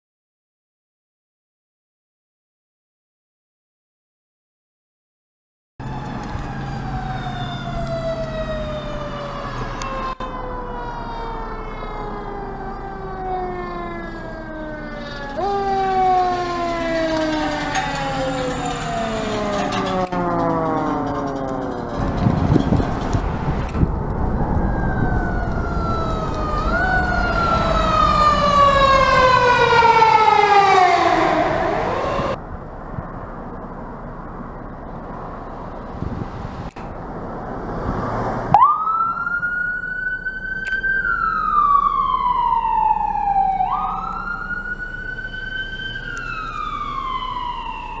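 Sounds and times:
sirens wailing: 5.8s - 32.4s, 37.7s - 48.0s
road traffic noise: 5.8s - 48.0s.

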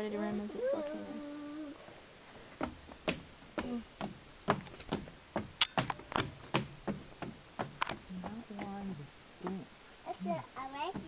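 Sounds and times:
person speaking: 0.0s - 1.8s
sharp clicks: 7.7s - 8.0s.

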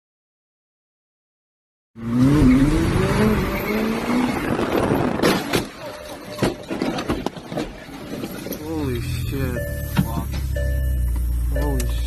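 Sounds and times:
car engine revving: 2.0s - 5.3s.

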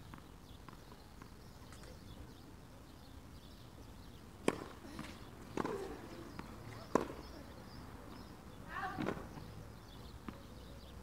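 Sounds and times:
tennis ball struck by racket: 4.4s - 7.3s
faint ball bounce: 4.4s - 7.4s.

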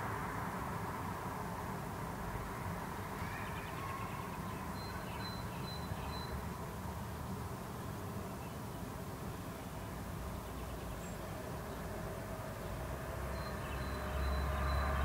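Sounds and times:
distant road traffic hum: 0.0s - 15.0s
bird chirping: 3.2s - 6.4s, 12.6s - 15.0s.

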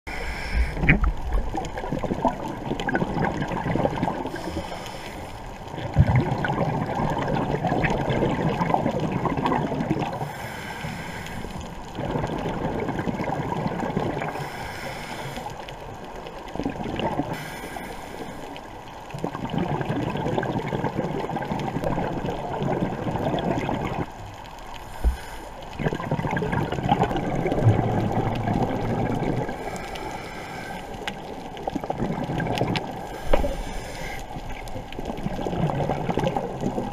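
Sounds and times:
regulator inhale hiss: 0.1s - 1.1s, 4.2s - 5.6s, 10.2s - 11.8s, 14.3s - 15.8s, 17.3s - 18.7s, 24.8s - 25.7s, 29.5s - 31.3s, 33.0s - 34.6s
exhaled air bubbling: 0.1s - 36.9s.

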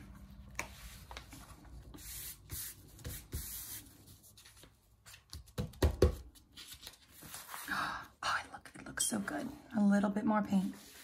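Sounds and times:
paper rustling: 6.3s - 7.7s.

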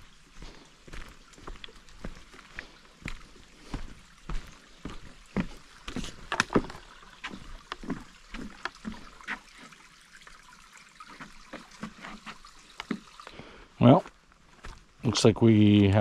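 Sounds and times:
footsteps on wooden planks: 0.0s - 9.7s, 11.1s - 13.1s, 14.0s - 14.9s.

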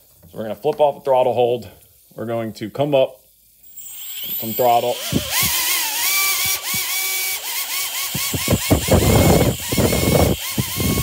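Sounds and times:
electric helicopter motors whining: 3.6s - 11.0s
rushes of air noise: 8.1s - 11.0s.

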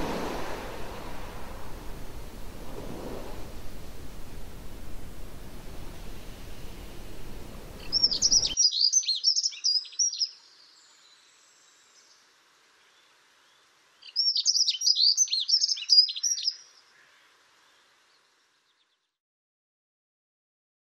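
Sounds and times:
steady low hiss: 0.0s - 8.6s, 9.4s - 14.6s, 15.8s - 18.9s
robin singing: 7.8s - 12.2s, 12.9s - 17.9s.

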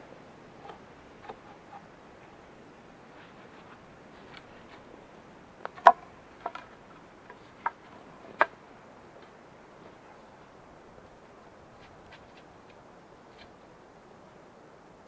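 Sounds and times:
wooden stakes clacking together: 5.6s - 8.6s.

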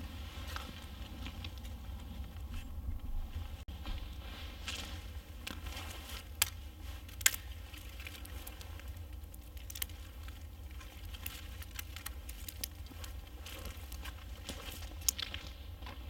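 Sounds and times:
footsteps on forest floor: 0.0s - 8.6s, 9.8s - 16.0s
leaves rustling: 0.0s - 15.6s
dry twigs cracking: 5.4s - 15.5s.

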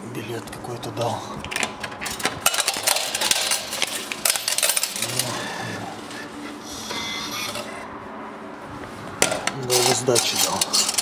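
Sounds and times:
ticket machine mechanical whirring: 2.1s - 7.8s, 9.6s - 11.0s
ticket machine rapid clicks: 2.4s - 5.6s, 9.7s - 11.0s.

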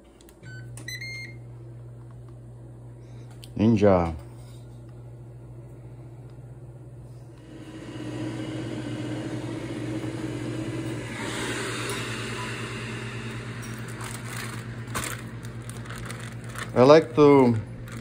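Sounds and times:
grill fan humming: 0.0s - 18.0s
airy rush: 7.8s - 14.0s.

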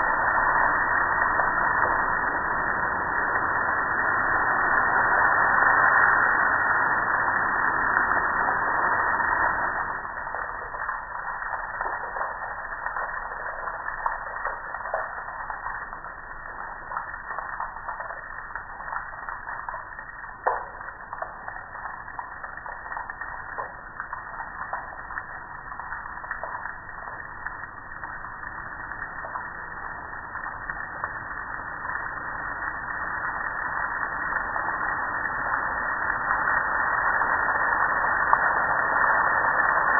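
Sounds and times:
water dripping off grill: 0.0s - 39.9s.

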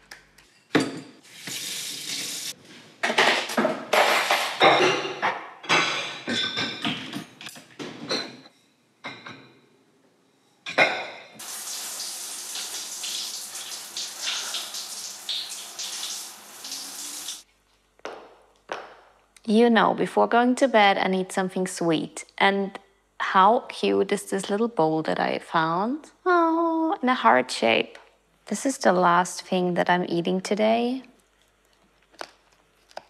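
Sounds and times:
kitchen tap running: 1.2s - 2.6s, 11.4s - 17.4s
dishes and cutlery clattering: 3.0s - 9.6s, 10.6s - 11.4s.

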